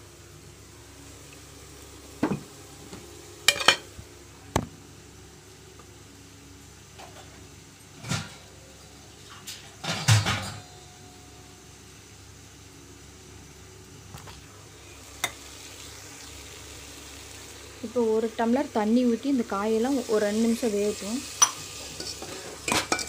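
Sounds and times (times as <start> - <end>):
kitchen utensils clinking: 3.5 - 3.9, 21.4 - 23.0.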